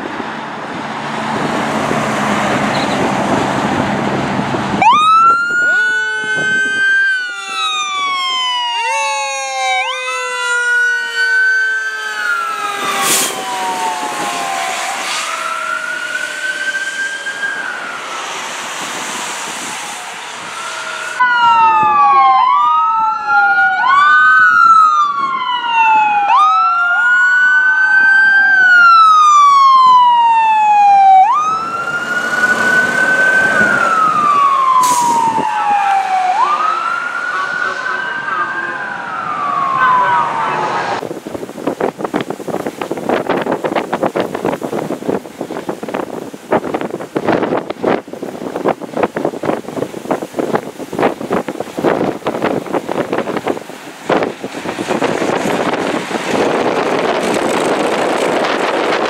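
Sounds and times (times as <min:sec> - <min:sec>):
fire engine running: 0:00.0 - 0:59.0
sirens wailing: 0:00.0 - 0:59.0.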